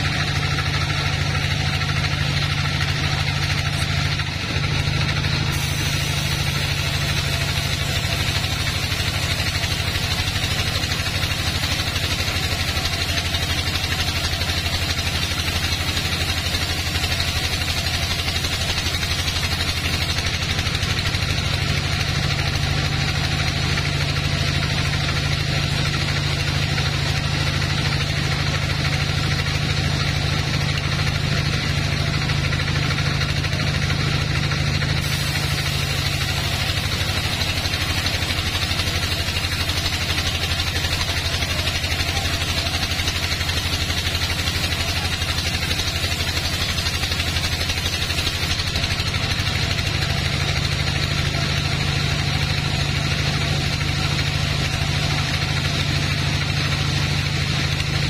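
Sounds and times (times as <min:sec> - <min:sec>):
band saw cutting log: 0:00.0 - 0:58.0
sawmill motor hum: 0:00.0 - 0:58.0.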